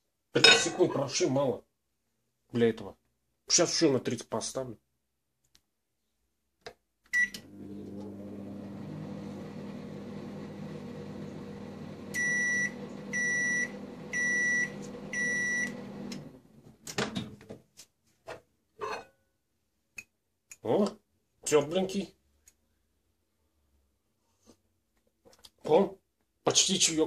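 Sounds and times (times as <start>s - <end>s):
microwave beeps: 7.2s - 7.6s, 11.5s - 16.2s
microwave humming: 7.2s - 16.6s.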